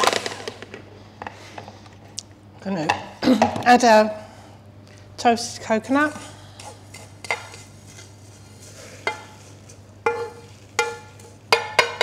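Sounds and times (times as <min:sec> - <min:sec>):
wooden spatula scraping frying pan: 0:06.6 - 0:12.0.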